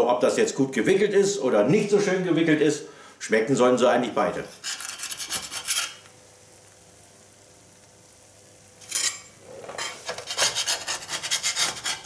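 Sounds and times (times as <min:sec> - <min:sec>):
metal spatula scraping stone: 0:04.6 - 0:06.0, 0:08.8 - 0:12.0.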